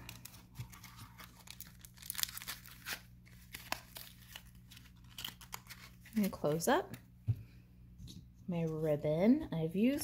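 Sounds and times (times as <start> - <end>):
foil crinkling: 0.0 - 6.7.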